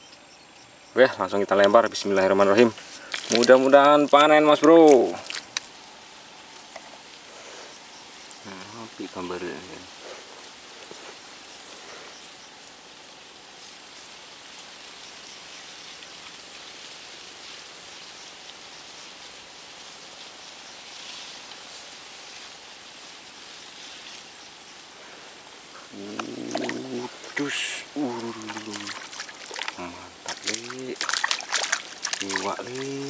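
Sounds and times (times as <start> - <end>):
soft steady hiss: 0.0 - 33.0
faint ticks: 4.6 - 5.8, 8.2 - 8.5.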